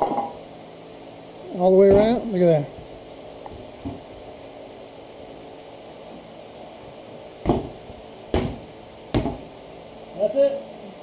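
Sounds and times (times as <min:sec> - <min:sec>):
heavy thumps on tractor tire: 0:07.4 - 0:09.5.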